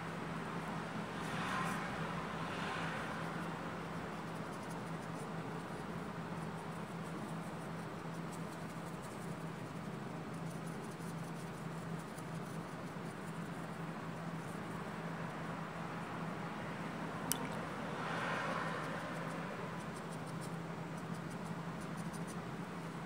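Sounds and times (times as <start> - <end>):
low hum and hiss: 0.0 - 23.0
brush strokes on paper: 18.0 - 22.5.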